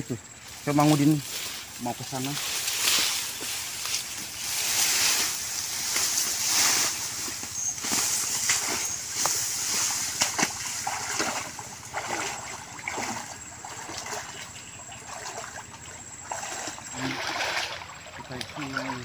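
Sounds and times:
crackling leaf rustle: 0.4 - 12.1
running water rushing: 0.5 - 19.0
splashing through water: 0.7 - 19.0.

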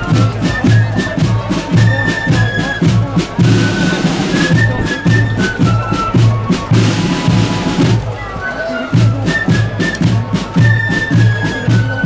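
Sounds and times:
bass drum beat: 0.0 - 8.2
flute melody: 0.0 - 12.0
side drums: 0.0 - 12.0.

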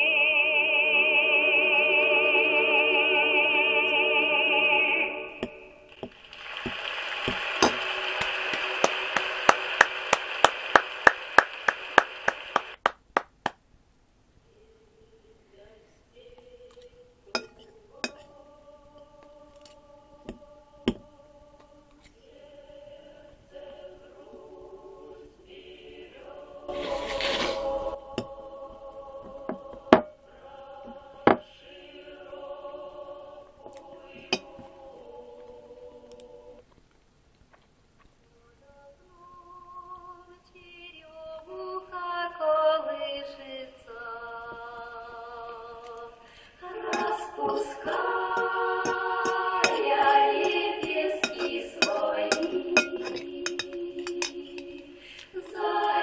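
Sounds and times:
choral singing: 0.0 - 12.8, 14.6 - 36.7, 38.8 - 56.0
hand claps: 6.0 - 13.6
fork clinking on ceramic plate: 48.4 - 54.8.

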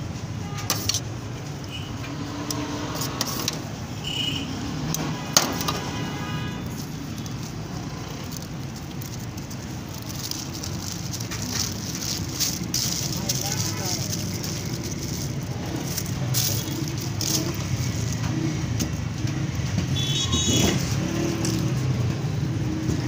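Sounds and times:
paper crinkling: 3.0 - 3.6, 5.0 - 22.0.

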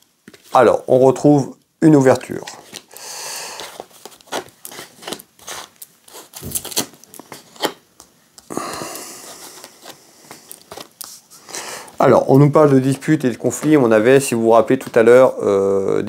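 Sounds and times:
cards sliding rustle: 2.6 - 8.1, 8.8 - 12.0.

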